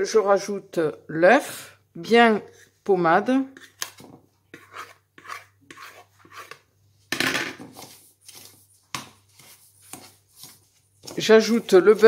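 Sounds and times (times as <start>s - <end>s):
fork scraping metal bowl: 3.5s - 6.6s, 7.7s - 12.0s.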